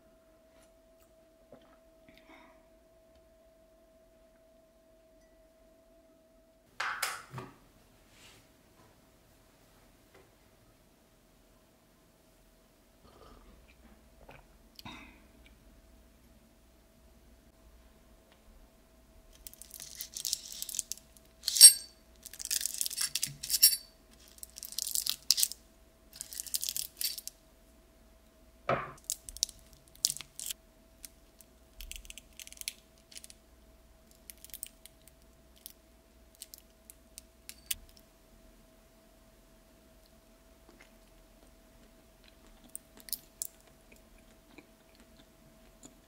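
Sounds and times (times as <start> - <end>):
sharp clink on plate: 21.5 - 22.0.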